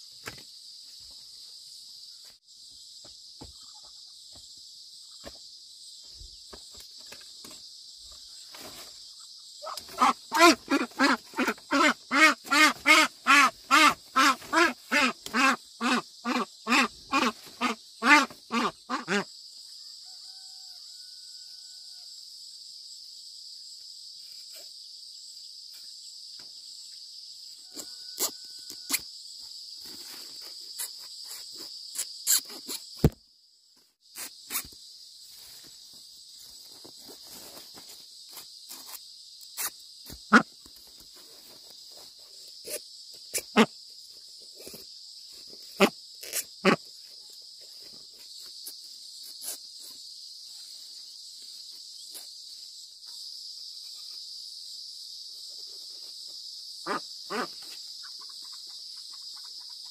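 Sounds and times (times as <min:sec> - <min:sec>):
insects chirring: 0:00.0 - 0:59.9
duck quacking: 0:09.6 - 0:19.3.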